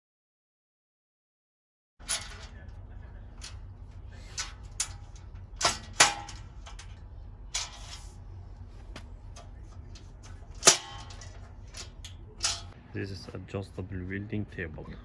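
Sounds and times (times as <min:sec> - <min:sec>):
metal scrape: 0:03.4 - 0:08.7, 0:09.3 - 0:12.8
loud metal clack: 0:04.4 - 0:07.0, 0:10.5 - 0:12.8
metallic clicks and knocks: 0:04.4 - 0:08.0, 0:09.3 - 0:12.8.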